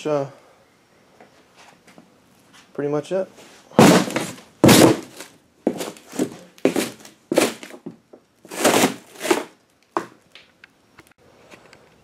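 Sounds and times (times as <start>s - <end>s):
cardboard rustling and scuffing: 3.7s - 10.2s.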